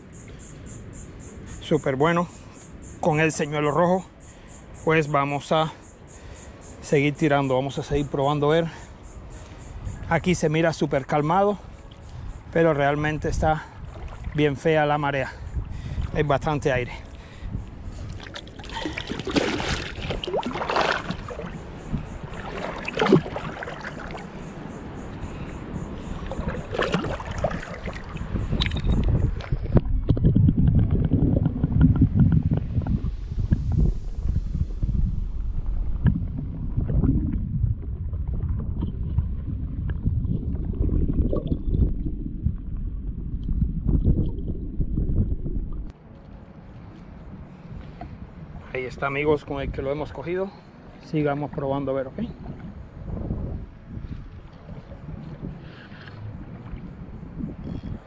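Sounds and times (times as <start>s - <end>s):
water splashing and sloshing: 13.4s - 48.5s, 51.3s - 58.0s.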